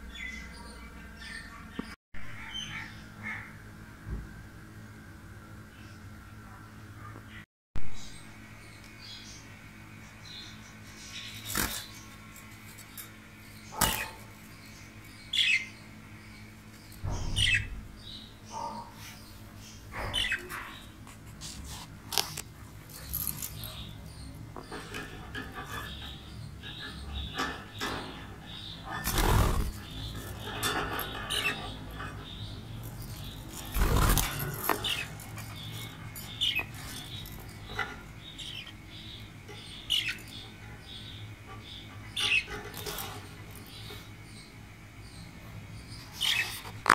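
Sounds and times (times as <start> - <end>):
budgerigars chirping: 19.6 - 20.9, 23.0 - 45.2.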